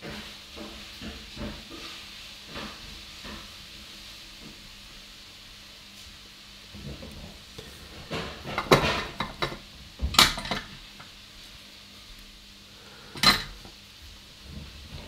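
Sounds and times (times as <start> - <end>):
metal tools clinking on workbench: 13.2 - 13.6.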